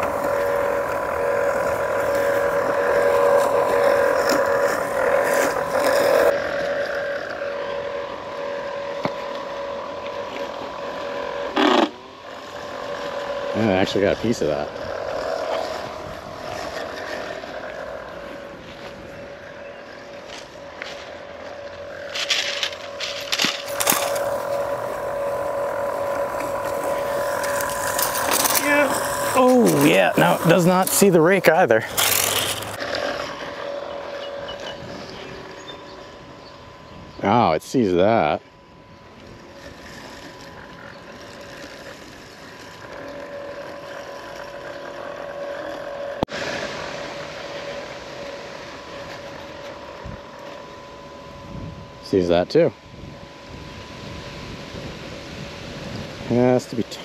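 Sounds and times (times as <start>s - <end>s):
continuous rushing noise: 0.0s - 38.5s
electric motor whine: 0.0s - 57.0s.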